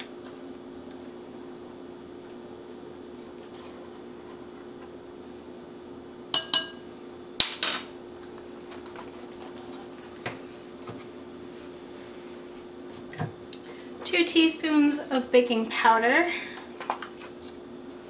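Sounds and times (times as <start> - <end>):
spoon clinking on ceramic bowl: 6.4 - 6.8
spoon knocking on glass stovetop: 6.4 - 6.8.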